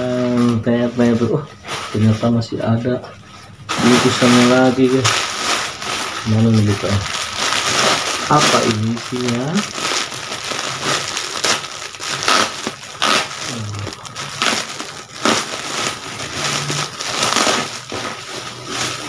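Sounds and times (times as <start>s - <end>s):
plastic bag tearing: 0.0s - 2.5s, 3.7s - 19.0s
plastic bag crinkling: 0.0s - 3.0s, 3.7s - 19.0s.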